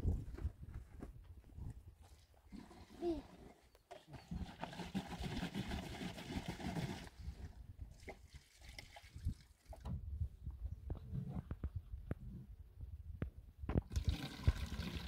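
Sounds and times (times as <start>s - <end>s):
water pouring into plastic container: 4.2s - 9.9s, 13.8s - 15.0s.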